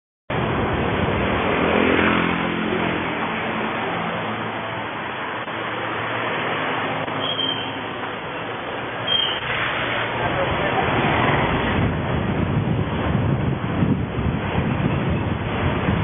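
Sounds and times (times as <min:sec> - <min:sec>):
road and wind noise: 0:00.3 - 0:16.0
vehicle engine accelerating: 0:00.4 - 0:07.2.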